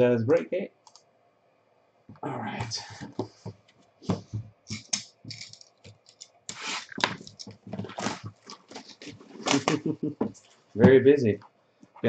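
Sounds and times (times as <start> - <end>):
hands tapping and scraping a box: 3.0 - 11.0
plastic wrap crinkling: 6.6 - 9.8.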